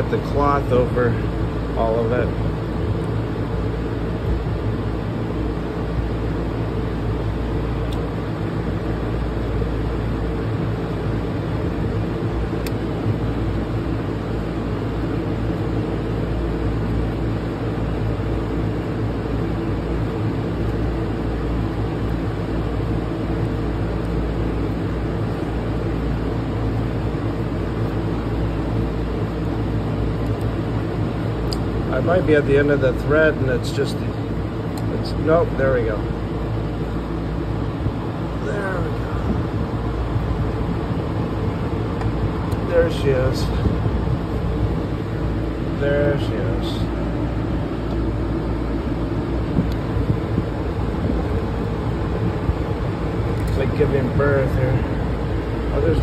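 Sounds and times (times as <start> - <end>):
steady mechanical hum: 0.0 - 56.0
constant hiss: 21.6 - 56.0.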